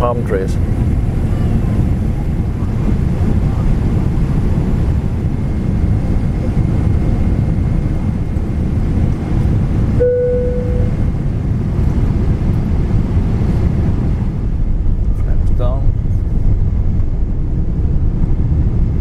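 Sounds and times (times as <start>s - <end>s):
aircraft cabin engine roar: 0.0s - 19.0s
short single tone: 10.0s - 11.0s.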